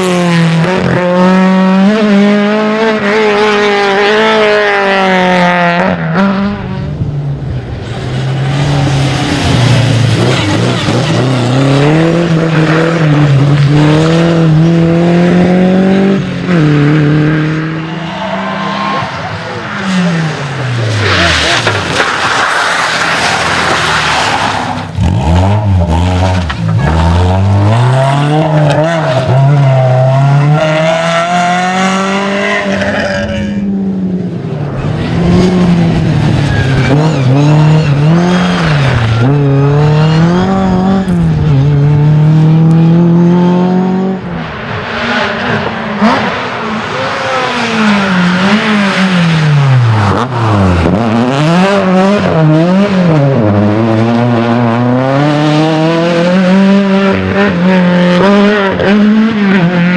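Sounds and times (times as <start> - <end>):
rally car engines revving high: 0.0 - 59.9
loud rushing noise: 7.3 - 13.0.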